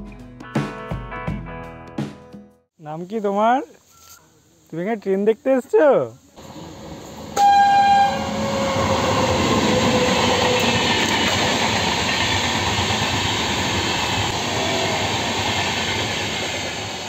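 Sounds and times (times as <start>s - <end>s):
train wheels rattling on rails: 7.2s - 17.0s.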